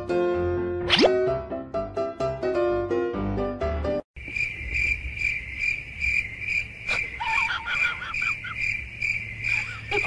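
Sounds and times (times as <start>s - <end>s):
cricket chirping: 4.2s - 10.0s.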